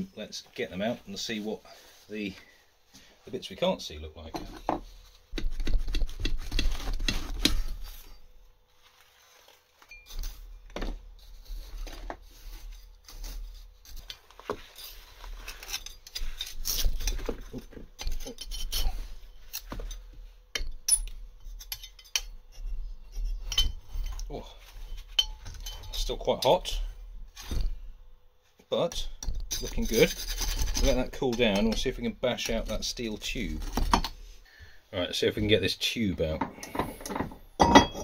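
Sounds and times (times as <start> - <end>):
metal scraper digging sand: 29.5 - 33.6.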